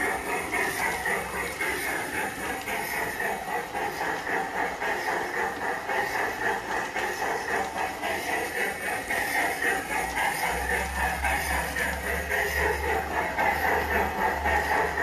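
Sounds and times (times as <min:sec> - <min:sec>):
model train hum and rattle: 0:00.0 - 0:15.0.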